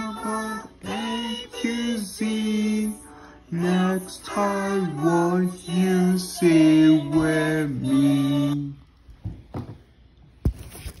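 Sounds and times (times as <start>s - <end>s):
cartoon song sung notes: 0.0s - 8.7s.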